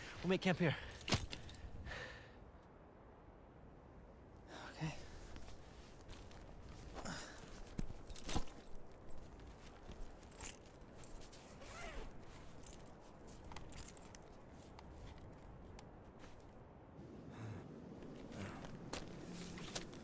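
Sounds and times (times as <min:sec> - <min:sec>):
nylon rustling: 0:05.3 - 0:15.4, 0:18.2 - 0:20.0.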